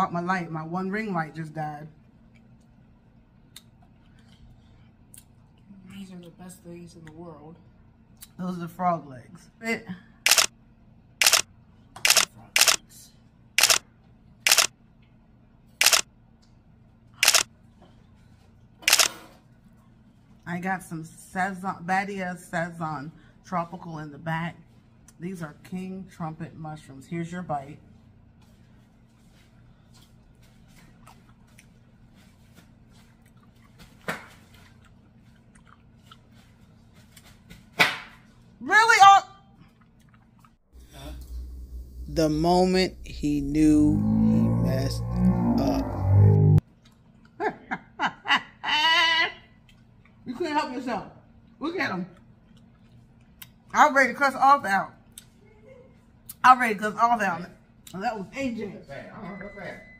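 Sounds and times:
camera shutter clicks: 10.3 - 10.5, 11.2 - 11.4, 12.1 - 12.8, 13.6 - 13.8, 14.5 - 14.7, 15.8 - 16.0, 17.2 - 17.5, 18.9 - 19.1
mouth chewing: 33.1 - 33.8, 34.7 - 36.4.

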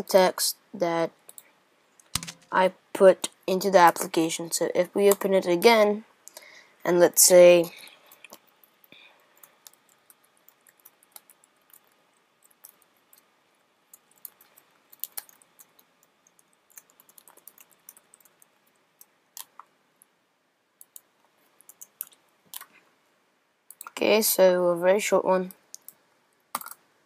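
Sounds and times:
keyboard typing clicks: 2.1 - 2.6.

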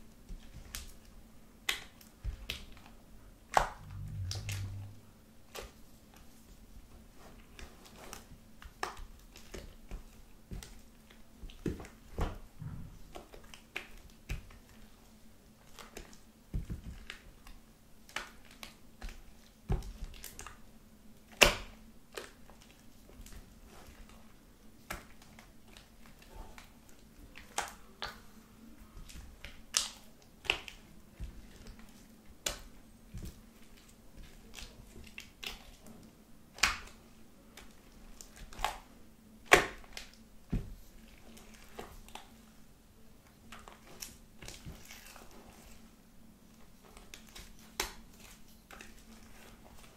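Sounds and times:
faint steady hum: 3.2 - 6.6, 12.5 - 13.4
slime squelching stirred with spatula: 23.2 - 24.3, 43.4 - 46.0, 46.8 - 49.9.

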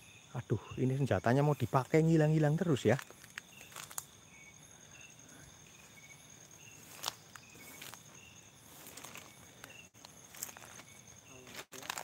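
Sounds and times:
night insects chirping: 0.0 - 12.0
footsteps crunching in undergrowth: 1.6 - 4.2, 5.6 - 12.0.

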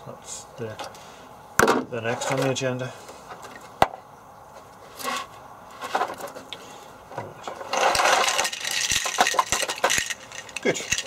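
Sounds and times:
wiring loom rustling: 7.2 - 11.0.

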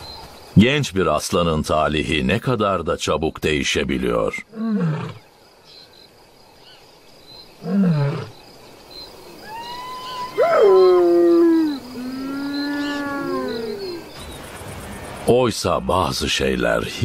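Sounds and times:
lion moaning call: 4.5 - 5.2, 7.6 - 8.4, 9.4 - 14.1
lion wailing calls: 9.4 - 14.2.

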